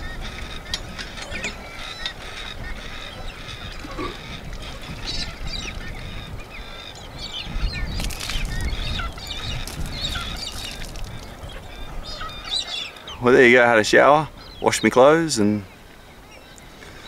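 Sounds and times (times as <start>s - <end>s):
birds squawking and chirping: 0.0s - 17.0s.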